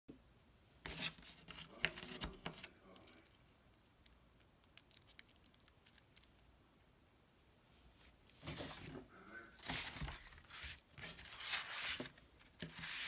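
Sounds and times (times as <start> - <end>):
knife rustling on cardboard: 9.6 - 13.0.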